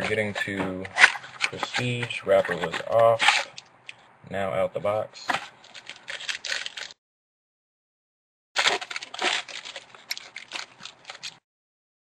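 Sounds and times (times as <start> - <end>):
foil wrapper crinkling: 5.3 - 7.0, 8.6 - 11.4.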